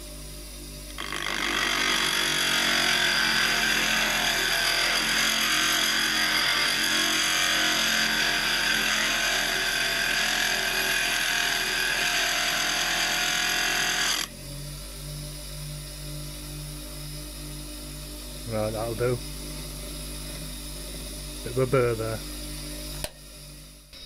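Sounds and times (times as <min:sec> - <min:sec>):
bench grinder motor running: 0:00.9 - 0:23.2
chisel grinding on grinder wheel: 0:01.0 - 0:14.3.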